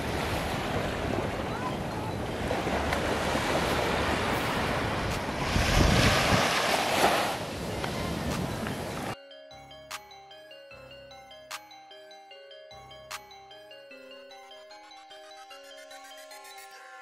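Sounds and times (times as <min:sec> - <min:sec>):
small waves washing onto sand: 0:00.0 - 0:09.1
wind on microphone: 0:00.0 - 0:09.1.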